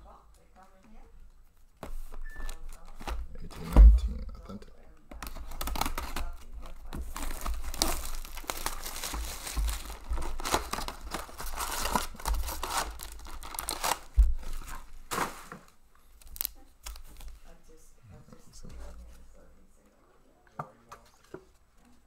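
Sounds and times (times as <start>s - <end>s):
cardboard and foil rustling: 5.2s - 17.4s
shrink wrap crinkling and tearing: 5.2s - 17.4s.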